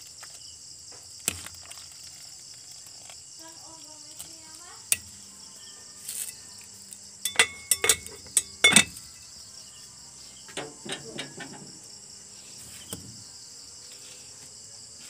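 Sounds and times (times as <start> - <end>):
crickets chirring: 0.0 - 15.0
sharp clinks and knocks: 7.2 - 9.2.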